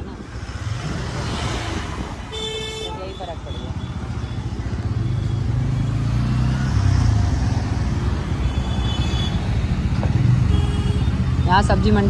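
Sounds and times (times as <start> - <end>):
wind noise: 0.0 - 2.7
road noise: 0.0 - 12.0.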